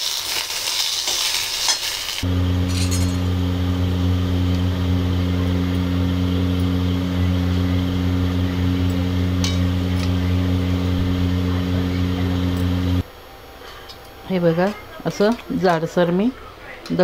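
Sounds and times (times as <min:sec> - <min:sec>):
mixer grinder humming: 0:02.2 - 0:13.1.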